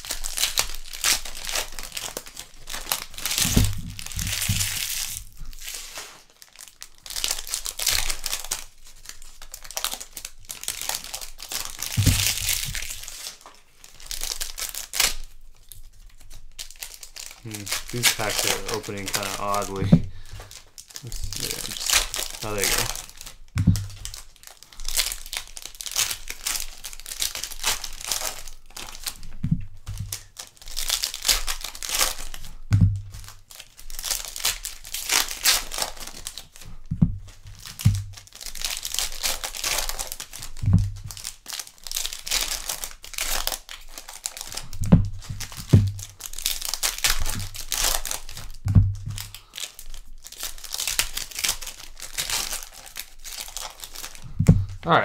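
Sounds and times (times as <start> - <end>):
card wrappers tearing and crinkling: 0.0 - 54.8
soft low thumps of handling: 11.9 - 12.8, 19.7 - 20.5, 23.6 - 24.1, 29.4 - 30.2, 32.7 - 33.2, 36.8 - 38.2, 40.6 - 41.0, 44.8 - 46.1, 48.6 - 49.2, 54.3 - 54.8.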